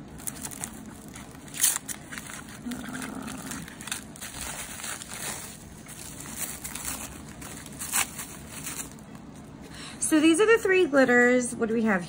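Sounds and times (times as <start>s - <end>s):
rustling and crinkling: 0.0s - 9.6s.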